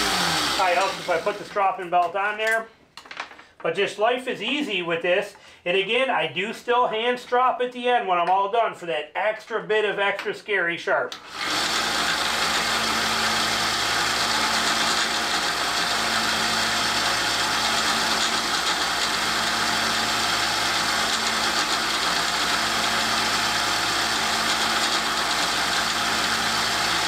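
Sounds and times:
belt sander running: 0.0s - 1.6s, 11.2s - 27.0s.

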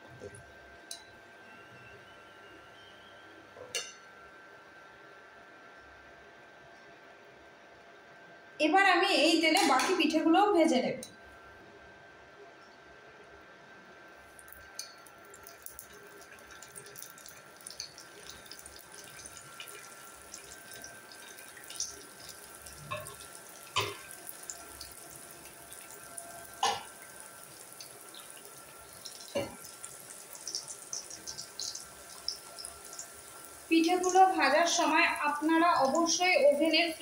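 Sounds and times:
dumplings sizzling in hot oil: 14.3s - 37.0s.

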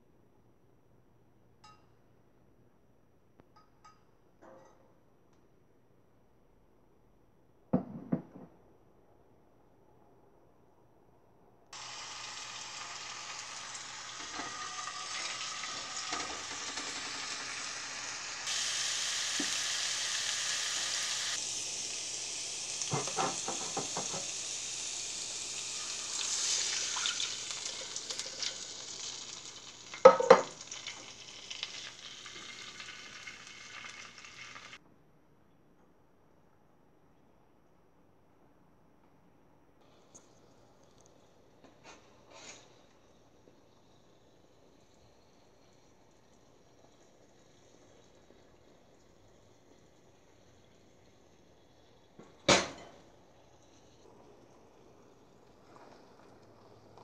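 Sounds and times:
garlic sizzling in oil: 11.8s - 34.8s, 41.8s - 57.0s.

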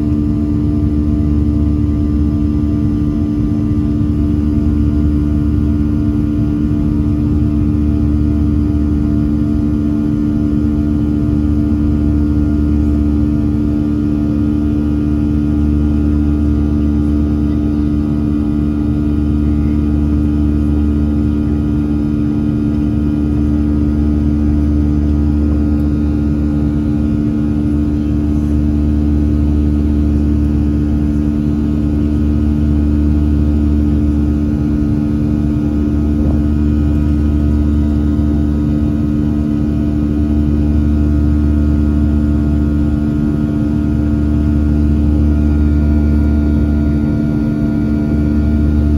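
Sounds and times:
airplane cabin engine drone: 0.0s - 48.9s.

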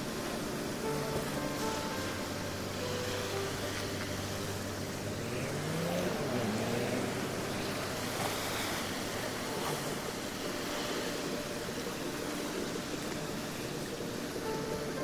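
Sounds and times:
small waves washing onto beach: 0.0s - 15.0s
motor rising in pitch: 1.6s - 10.0s.

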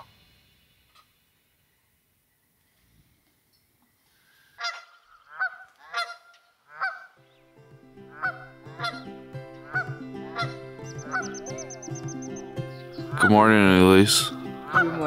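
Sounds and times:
goose honking: 4.6s - 7.2s, 8.0s - 15.0s
background music: 7.2s - 15.0s.

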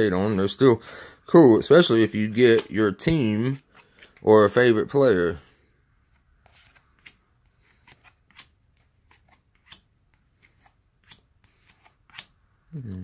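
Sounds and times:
cards being flipped: 2.3s - 2.7s, 3.4s - 4.2s, 6.0s - 12.4s.

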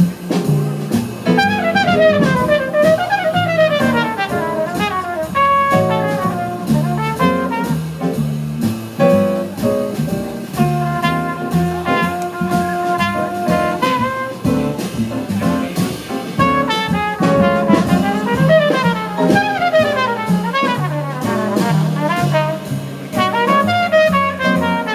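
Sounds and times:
jazz big band playing: 0.0s - 24.9s
trumpet solo: 1.2s - 7.9s, 10.6s - 14.8s, 16.4s - 24.9s.

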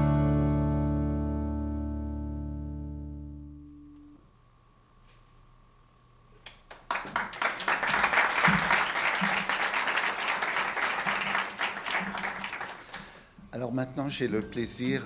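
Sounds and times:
audience applauding: 6.5s - 13.4s.

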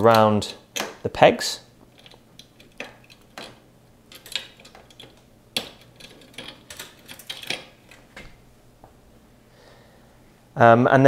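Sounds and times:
metal cable clicking and rattling: 1.8s - 8.4s.

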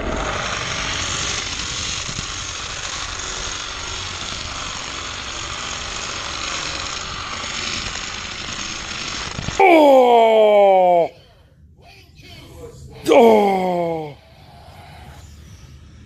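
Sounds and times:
toy car wheels on plastic track: 0.0s - 9.6s.

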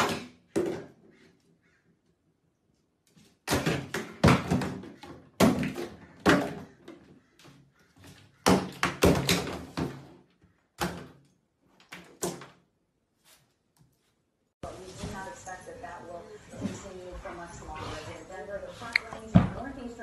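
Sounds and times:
plastic bottles thunking into tub: 0.0s - 1.0s, 3.3s - 7.1s, 8.4s - 12.6s.

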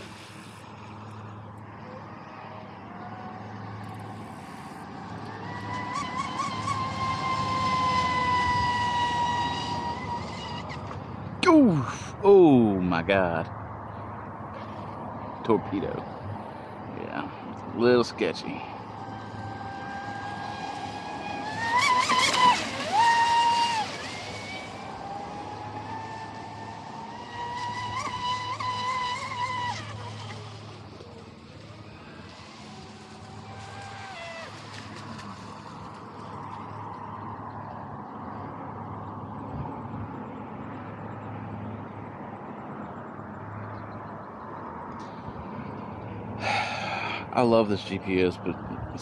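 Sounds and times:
model speedboat motor whining: 0.0s - 11.2s, 18.7s - 36.8s.

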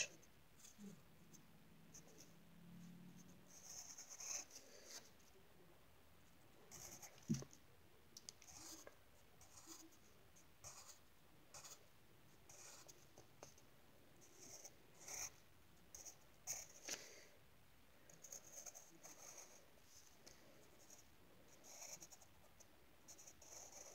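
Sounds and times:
pencil scratching on paper: 3.5s - 5.1s, 6.7s - 7.4s, 8.4s - 10.0s, 10.6s - 11.8s, 12.5s - 13.6s, 14.3s - 16.8s, 18.1s - 19.6s, 21.6s - 22.3s, 23.1s - 23.9s.

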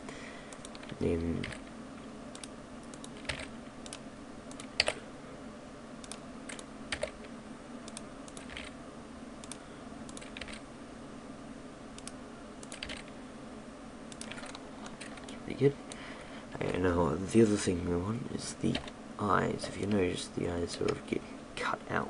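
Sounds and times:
steady low hum: 0.0s - 22.0s
computer keyboard and mouse clicks: 2.3s - 5.0s, 6.0s - 7.3s, 7.9s - 8.8s, 9.4s - 10.6s, 12.0s - 13.1s, 14.1s - 15.4s.

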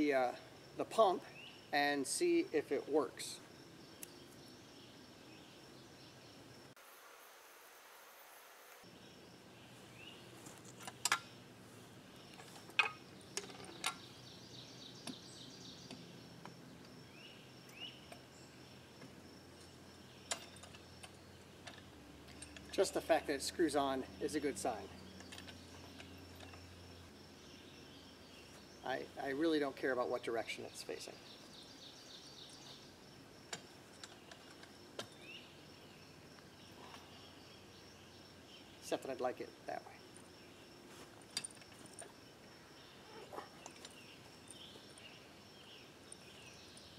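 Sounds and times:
high insect buzz: 3.4s - 29.2s
bird chirps: 12.0s - 40.7s, 41.8s - 46.9s.

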